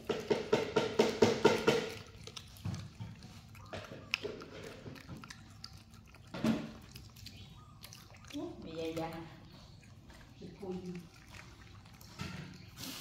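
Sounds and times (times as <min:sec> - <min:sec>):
monkeys crunching food: 0:00.0 - 0:13.0.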